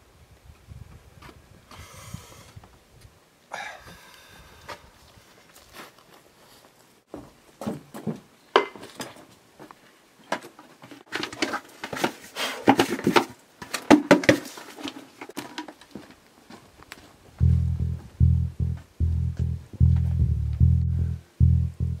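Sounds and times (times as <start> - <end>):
footsteps on wooden boards: 7.1 - 17.1.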